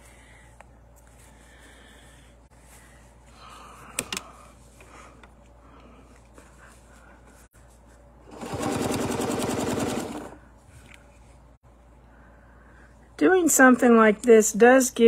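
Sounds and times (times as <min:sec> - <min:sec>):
sewing machine stitching: 0:08.3 - 0:10.4.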